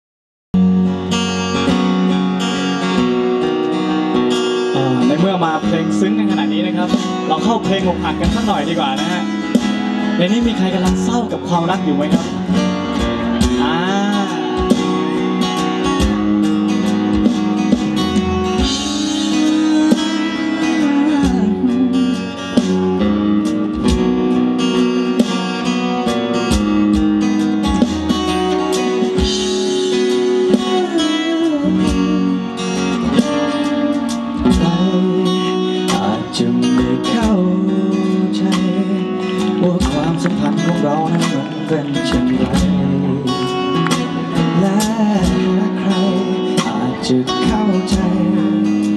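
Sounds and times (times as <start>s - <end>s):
acoustic guitar strumming: 0.6s - 48.9s
man singing into microphone: 4.4s - 15.6s, 18.6s - 23.4s, 28.2s - 48.9s.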